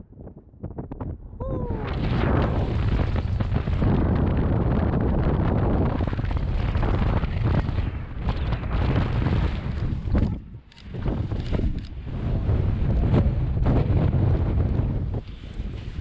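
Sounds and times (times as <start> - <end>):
strong wind buffeting microphone: 0.0 - 16.0
falling tone: 1.4 - 2.6.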